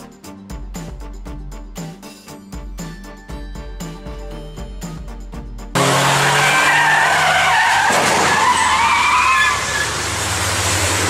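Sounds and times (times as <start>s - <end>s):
car engine running: 4.6s - 8.6s
car tyres squealing: 5.8s - 11.0s.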